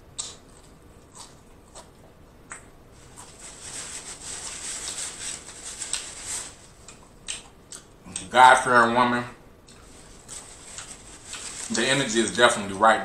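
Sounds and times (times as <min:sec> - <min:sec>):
chewing crispy fried food: 0:00.1 - 0:08.3, 0:09.6 - 0:11.8.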